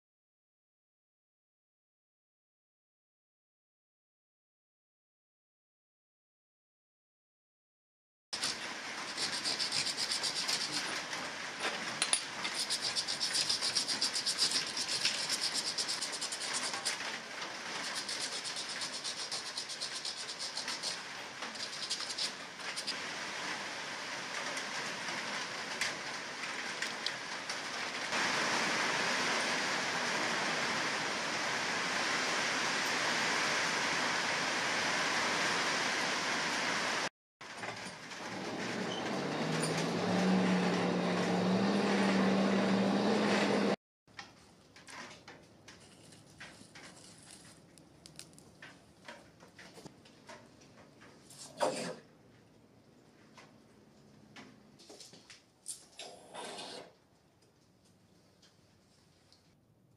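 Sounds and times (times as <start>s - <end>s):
sandpaper rasping on metal: 8.4s - 11.0s, 12.4s - 17.1s, 17.7s - 23.0s.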